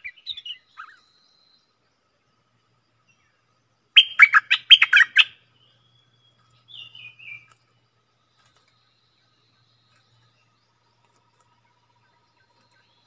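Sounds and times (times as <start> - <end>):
bird calling sharp notes: 4.0 - 5.4.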